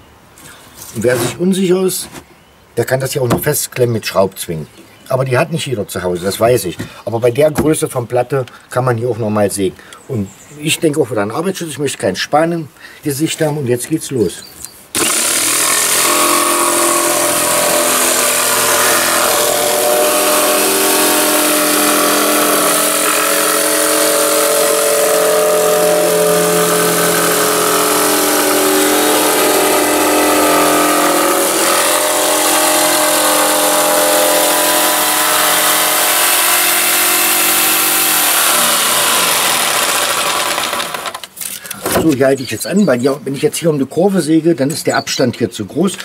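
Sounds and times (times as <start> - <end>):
jigsaw cutting plywood: 15.0 - 41.3.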